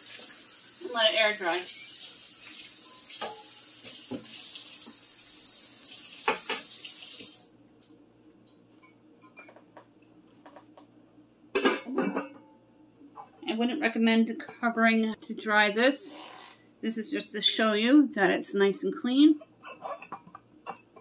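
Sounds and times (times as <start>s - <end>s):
faucet water splashing on pot lid: 5.8s - 7.5s.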